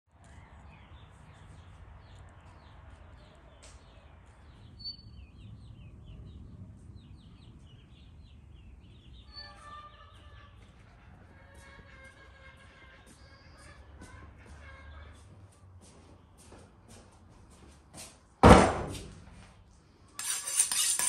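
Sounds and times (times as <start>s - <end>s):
small birds chirping: 0.1s - 11.4s
low background rumble: 3.9s - 11.1s.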